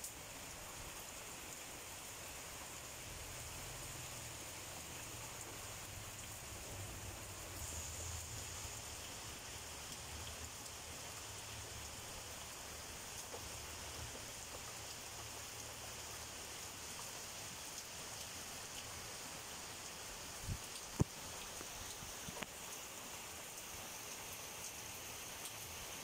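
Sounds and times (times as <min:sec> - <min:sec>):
heavy rain on leaves and roofs: 0:00.0 - 0:26.0
close raindrops ticking: 0:02.5 - 0:22.9.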